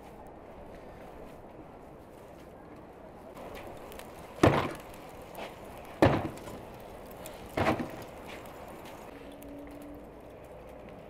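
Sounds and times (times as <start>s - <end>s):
sharp knocks with rattle: 4.4s - 4.8s, 6.0s - 6.6s, 7.6s - 8.0s.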